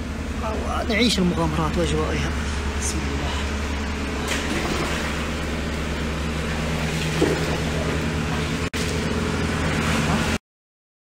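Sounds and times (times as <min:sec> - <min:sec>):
steady low hum: 0:00.0 - 0:10.4
boots splashing through water: 0:04.2 - 0:09.1.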